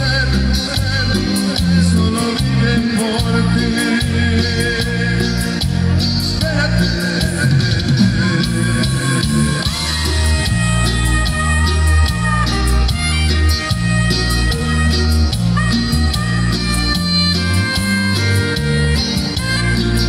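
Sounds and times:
person singing: 0.0s - 13.0s
live tropical band music: 0.0s - 20.0s.

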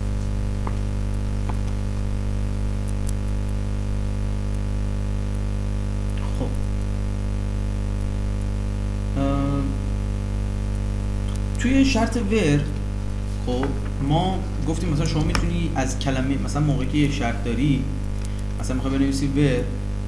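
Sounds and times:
electrical mains hum: 0.0s - 20.0s
faint clicks: 18.0s - 18.6s.

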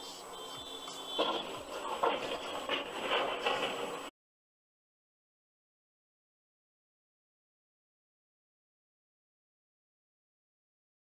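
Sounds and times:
steady noise: 0.0s - 4.1s.

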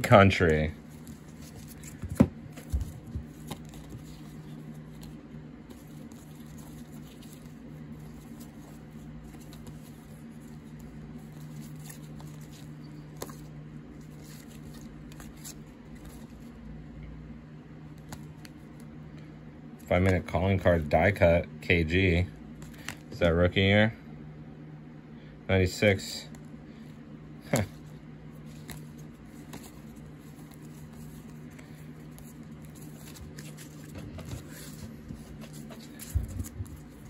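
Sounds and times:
steady low hum: 0.0s - 37.0s
cards clicking and tapping: 0.3s - 13.5s, 18.0s - 18.9s, 22.6s - 23.1s, 28.5s - 37.0s.

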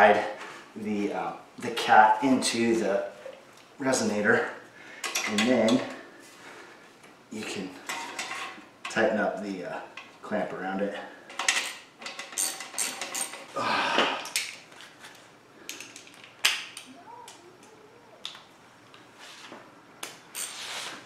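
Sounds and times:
metal hand tools clinking: 11.4s - 13.5s.

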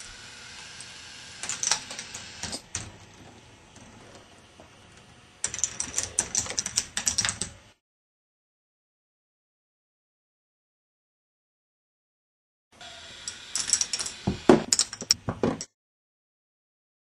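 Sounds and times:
ball machine clicking and clattering: 13.6s - 15.7s.

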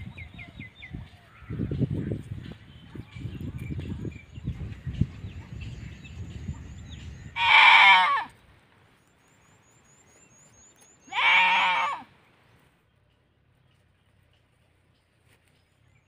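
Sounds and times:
goat bleating: 7.4s - 8.3s, 11.1s - 12.1s.

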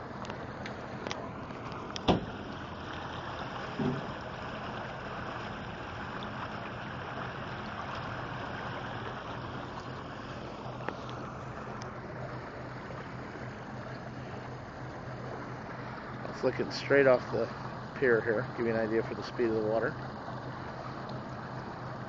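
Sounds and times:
water rushing against dock: 0.0s - 22.0s
dull thump: 2.0s - 2.4s, 3.7s - 4.2s.

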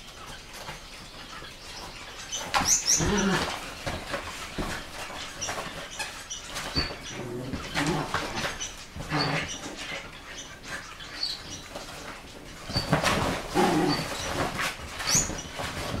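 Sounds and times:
low dog vocal sounds: 13.4s - 14.4s.

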